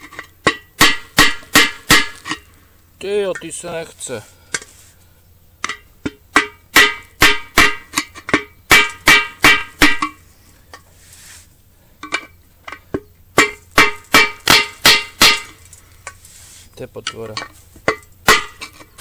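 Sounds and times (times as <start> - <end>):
hammer blows ringing on steel: 6.4 - 7.9, 8.7 - 10.2, 13.4 - 15.6.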